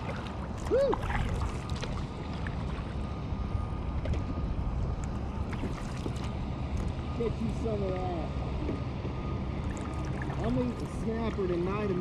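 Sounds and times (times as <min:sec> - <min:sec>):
paddle clicks and splashes: 0:00.0 - 0:02.8, 0:05.0 - 0:07.0.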